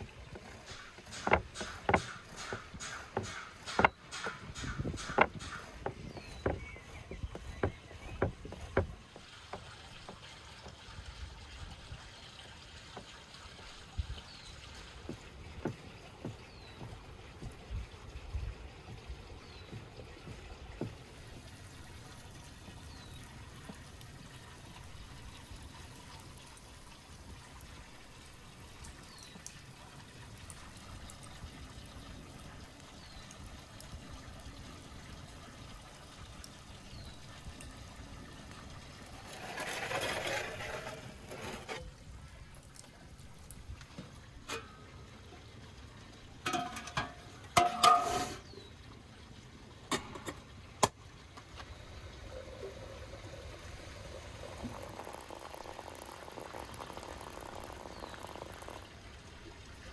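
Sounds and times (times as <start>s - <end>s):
water trickling: 0.0s - 59.9s
metallic clanks: 46.5s - 48.4s.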